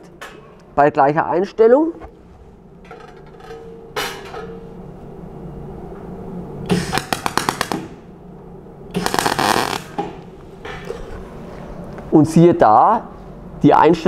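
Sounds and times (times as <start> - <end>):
welding arc sputtering and popping: 6.7 - 7.9, 8.9 - 10.3.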